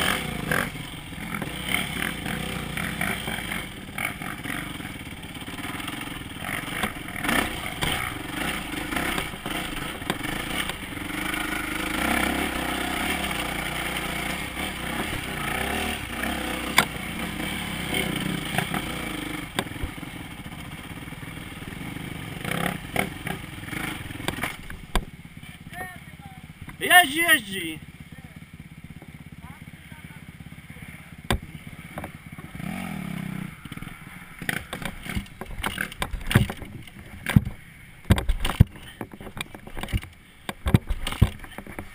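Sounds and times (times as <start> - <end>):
dirt bike engine revving: 0.0 - 36.6
bike rattling over ground: 31.4 - 41.9.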